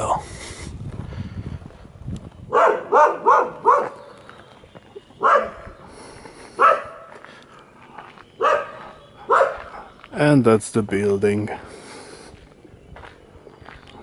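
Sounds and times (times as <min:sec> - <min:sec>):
dog barking: 0:02.5 - 0:04.0, 0:05.2 - 0:05.6, 0:06.6 - 0:07.1, 0:08.4 - 0:09.8.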